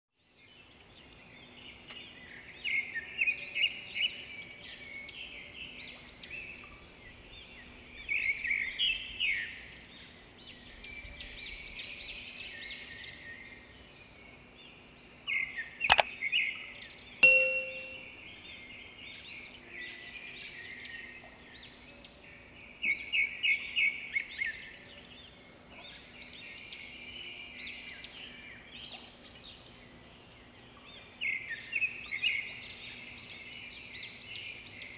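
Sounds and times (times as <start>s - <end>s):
sharp click: 15.9s - 16.1s, 17.2s - 18.1s
bell-like ding: 17.2s - 18.2s.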